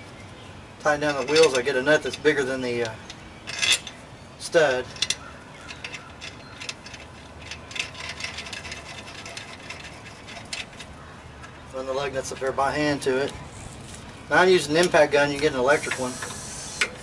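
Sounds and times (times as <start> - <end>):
metal nuts clicking and clinking: 1.1 - 4.0, 4.8 - 10.9.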